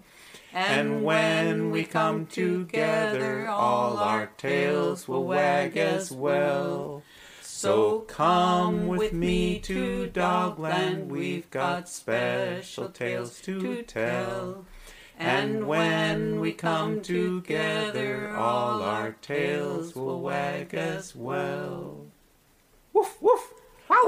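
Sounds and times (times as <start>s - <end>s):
man singing unaccompanied: 0.5s - 22.2s.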